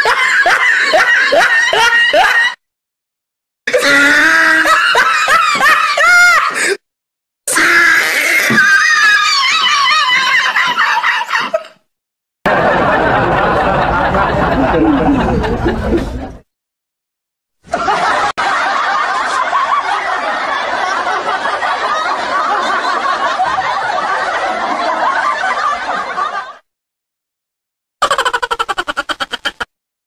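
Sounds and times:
people laughing: 0:00.0 - 0:02.6, 0:04.2 - 0:06.6, 0:09.0 - 0:11.8, 0:12.5 - 0:16.4, 0:17.7 - 0:26.7, 0:28.0 - 0:29.7.

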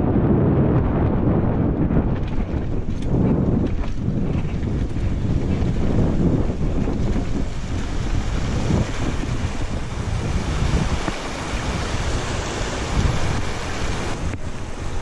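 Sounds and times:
wind rushing over microphone: 0:00.0 - 0:15.0
tyres splashing through water: 0:04.5 - 0:15.0.

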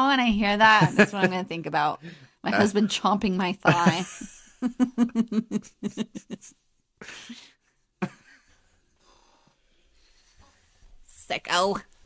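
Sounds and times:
breathy gasp: 0:02.0 - 0:02.4
person laughing: 0:03.7 - 0:08.4.

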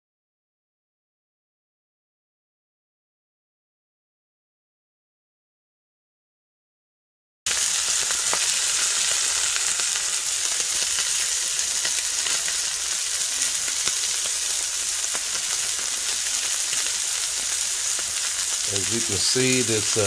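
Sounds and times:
steak sizzling in skillet: 0:07.5 - 0:20.0.

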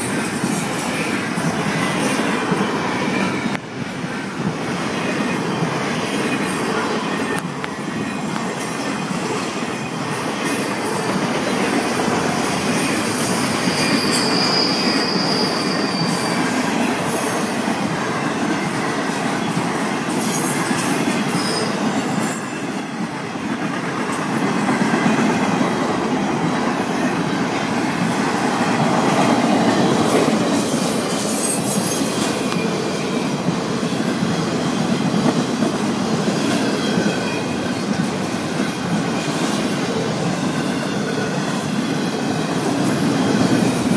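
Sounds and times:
high wheel squeal: 0:00.0 - 0:24.3, 0:29.5 - 0:35.4
train wheels rumbling on rail: 0:00.0 - 0:43.9.

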